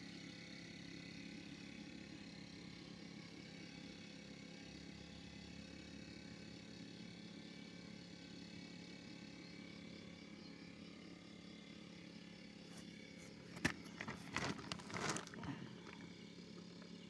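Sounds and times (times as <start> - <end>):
faint low hum: 9.4 - 17.0
rustling and crackling: 12.7 - 16.0.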